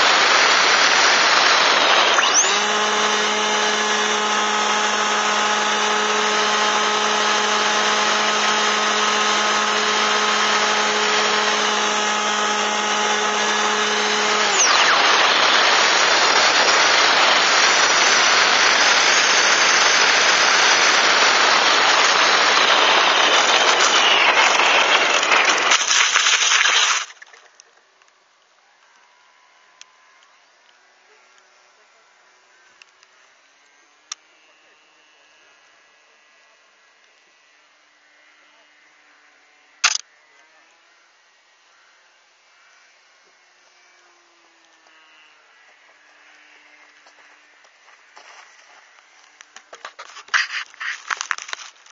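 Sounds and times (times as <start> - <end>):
air rushing over model plane: 0.0 - 27.5
propeller motor tone: 0.0 - 27.8.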